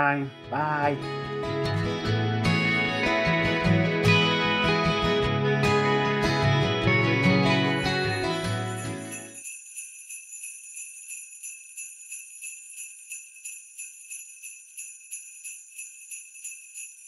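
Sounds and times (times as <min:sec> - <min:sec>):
background music: 0:00.0 - 0:09.4
sleigh bells jingling: 0:07.6 - 0:17.0.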